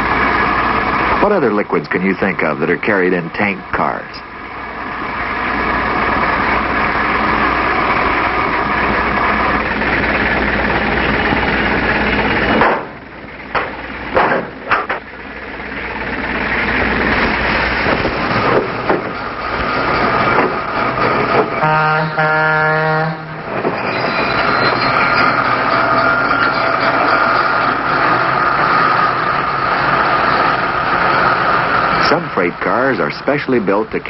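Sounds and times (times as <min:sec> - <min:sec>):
engine running: 0:00.0 - 0:34.0
sharp metal clanks: 0:12.4 - 0:15.1.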